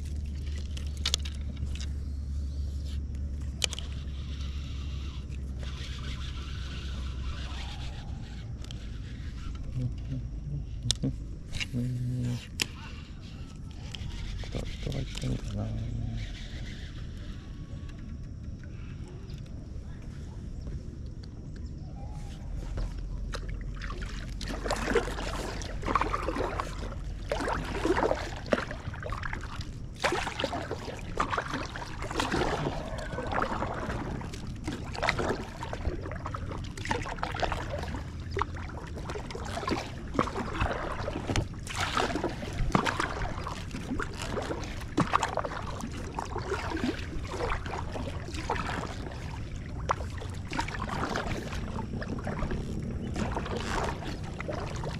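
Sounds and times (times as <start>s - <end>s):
paddle strokes splashing: 0.0s - 10.1s, 22.2s - 54.9s
water trickling and sloshing: 0.0s - 54.9s.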